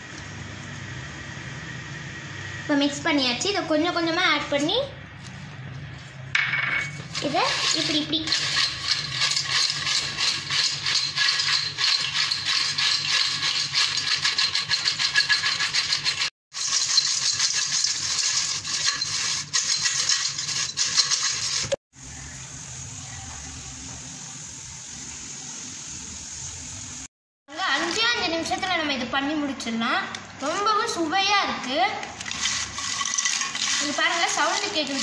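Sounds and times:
chips rattling in a steel bowl: 7.0 - 21.8, 27.5 - 28.7, 30.4 - 35.0.

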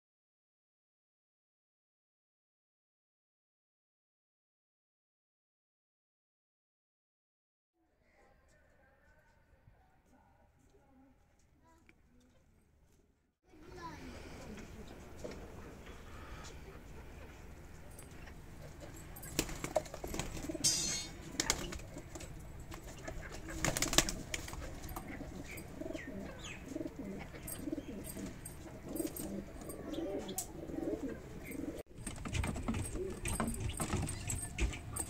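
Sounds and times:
pigeons cooing: 22.9 - 35.0.

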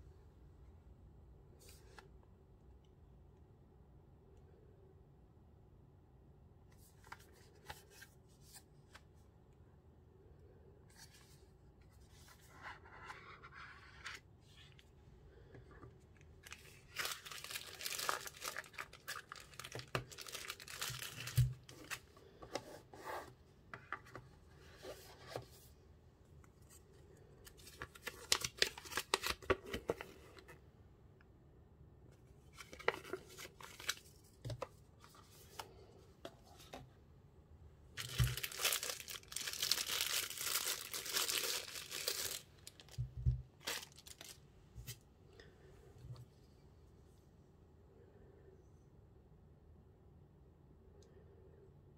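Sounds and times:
plastic bag crinkling: 16.4 - 22.0, 38.0 - 44.4.

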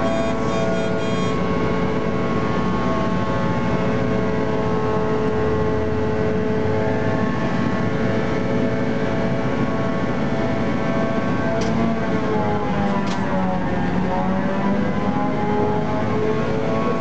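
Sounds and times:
short high beeping: 0.0 - 1.4
locomotive diesel engine running: 0.0 - 17.0.

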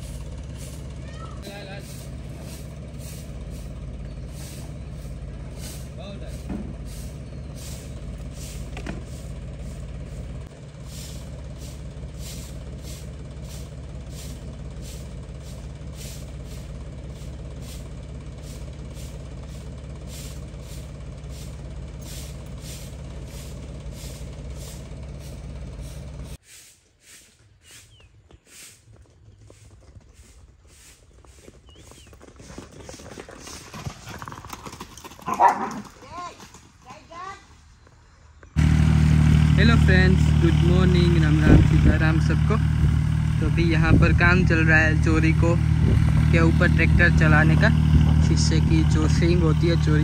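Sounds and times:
regular engine ticking: 0.0 - 26.4, 38.5 - 50.0
tractor engine idling: 0.0 - 26.4, 36.0 - 50.0.

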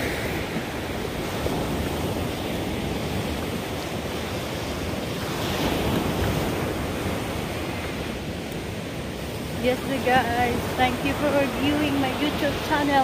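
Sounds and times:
surf washing onto beach: 0.0 - 13.0
wind buffeting microphone: 0.0 - 13.0.

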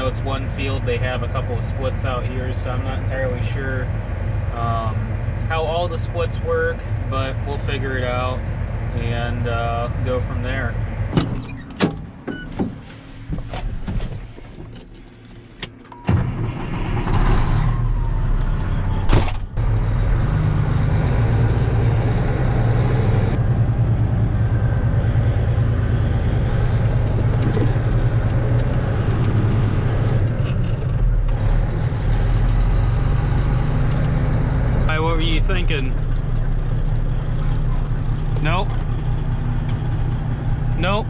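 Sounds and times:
diesel engine droning: 0.0 - 41.0
clicks and knocks climbing in: 26.8 - 31.4.

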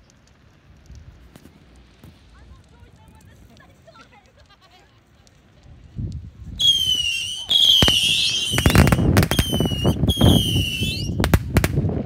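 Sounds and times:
firework whistling: 6.5 - 11.8
firework bangs: 6.6 - 12.0.

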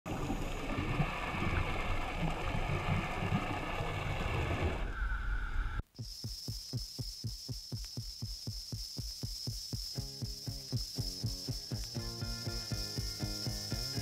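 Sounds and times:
underwater rumble and gurgling: 0.1 - 5.8
steady hum: 0.1 - 14.0
music with fast beat: 5.9 - 14.0.

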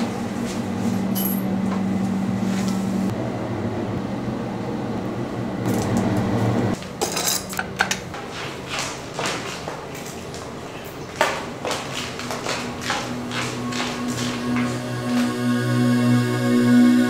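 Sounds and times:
steady low hum: 11.5 - 17.0.

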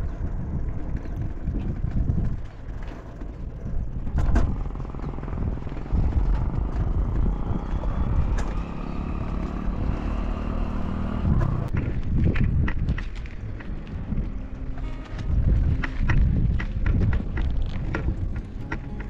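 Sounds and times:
bicycle tyre rumble on steel: 0.0 - 19.0
wind buffeting microphone: 0.0 - 19.0.

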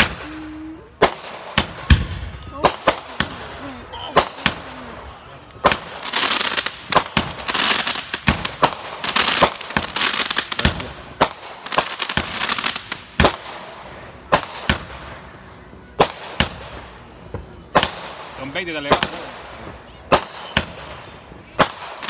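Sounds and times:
fireworks bangs: 0.0 - 22.0
fireworks crackling: 0.0 - 22.0.

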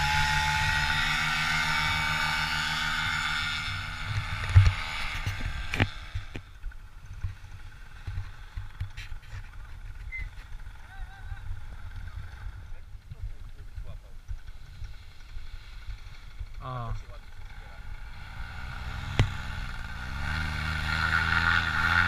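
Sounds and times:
paramotor engine running: 0.0 - 22.0.

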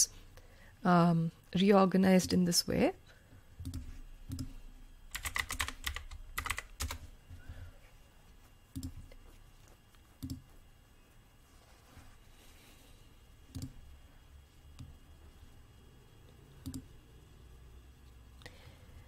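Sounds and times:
computer keyboard typing: 5.1 - 7.1.

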